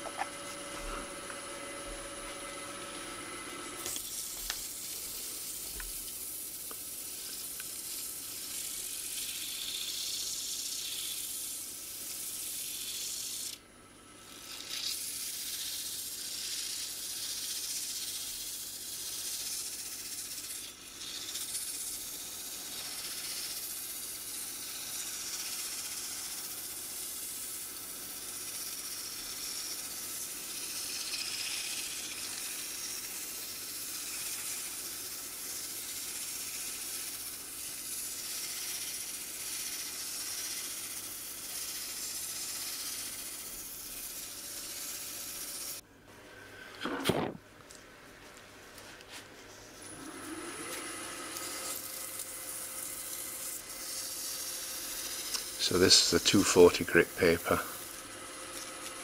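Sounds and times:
lathe humming: 0:00.0 - 0:13.6, 0:49.8 - 0:59.0
sandpaper hiss on spinning wood: 0:03.8 - 0:13.6, 0:14.3 - 0:45.8, 0:49.6 - 0:59.0.

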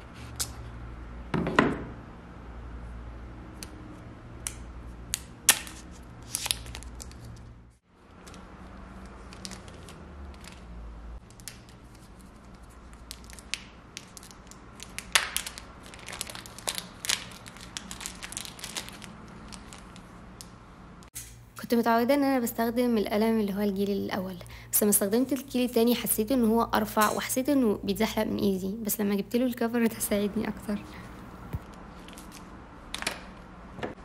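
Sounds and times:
plastic bag crinkling: 0:08.3 - 0:10.7, 0:11.4 - 0:20.2.

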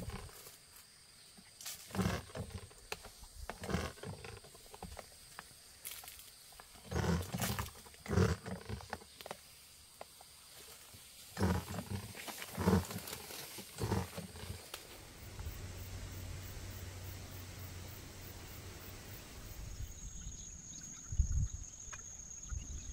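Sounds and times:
leaves brushing past: 0:10.5 - 0:19.8.

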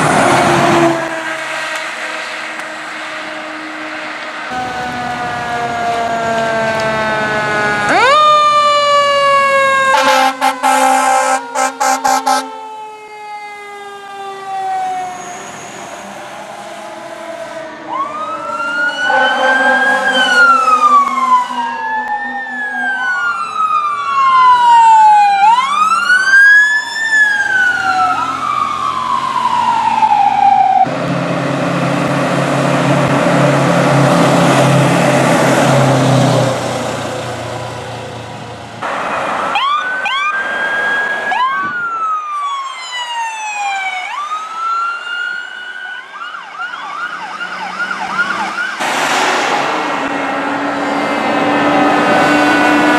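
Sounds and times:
loud low horn blare: 0:00.0 - 0:08.0, 0:09.7 - 0:12.7, 0:18.6 - 0:22.6, 0:47.5 - 0:52.9
emergency sirens wailing: 0:00.0 - 0:52.9.

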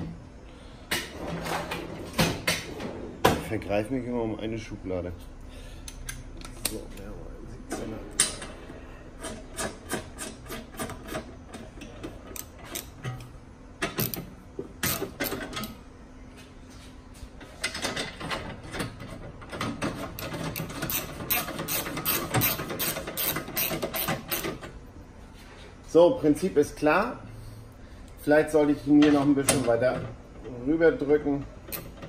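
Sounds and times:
hand ratchet clicking: 0:20.2 - 0:24.6.

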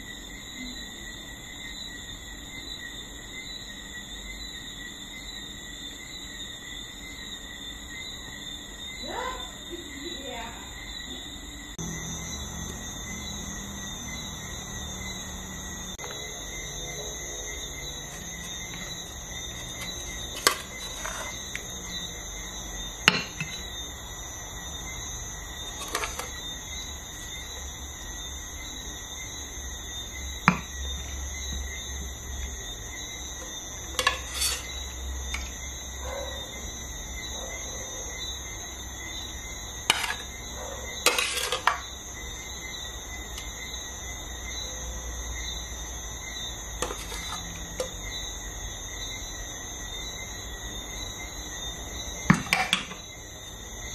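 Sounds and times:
metal utensils clinking: 0:18.1 - 0:21.4, 0:25.7 - 0:26.4, 0:34.0 - 0:34.8, 0:41.1 - 0:41.8, 0:46.8 - 0:47.9.

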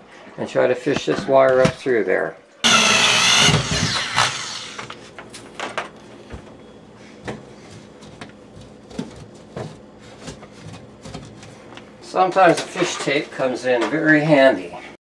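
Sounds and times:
electric drill winding down: 0:02.6 - 0:04.9.

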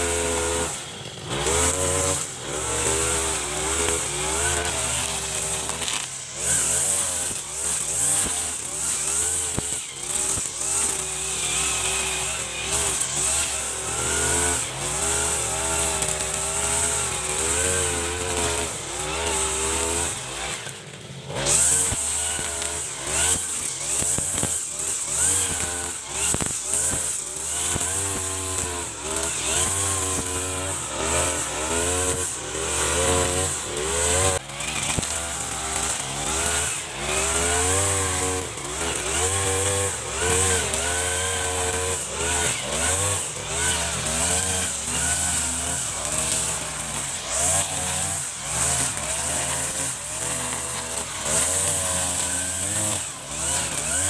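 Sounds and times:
brush cutter engine cutting grass: 0:00.0 - 0:54.0.

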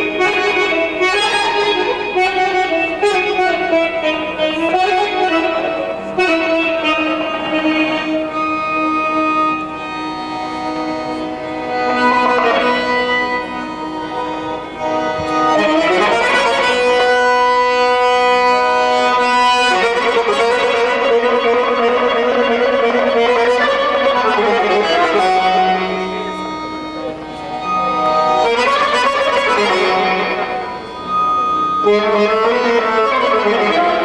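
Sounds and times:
button accordion melody: 0:00.0 - 0:34.0.

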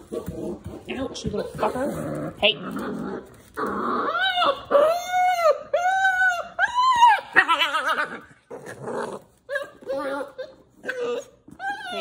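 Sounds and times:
puppy whining: 0:02.9 - 0:12.0.

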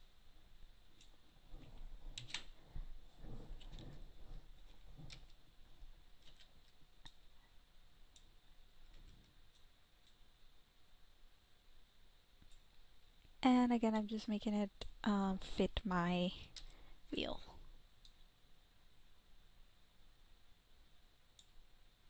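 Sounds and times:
computer mouse and keyboard clicks: 0:01.0 - 0:02.6, 0:06.2 - 0:07.2.

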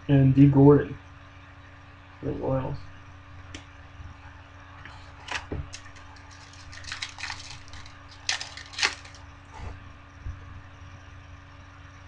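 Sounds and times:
foil wrapper crinkling and tearing: 0:05.1 - 0:09.3.

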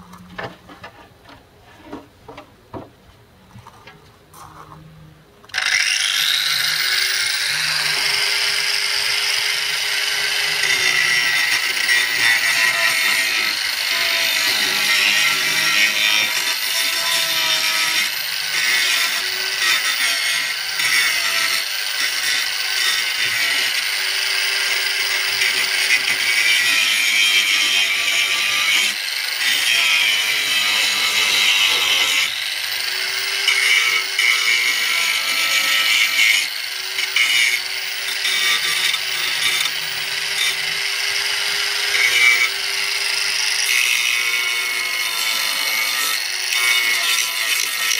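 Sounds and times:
angle grinder grinding metal: 0:05.5 - 0:47.9.

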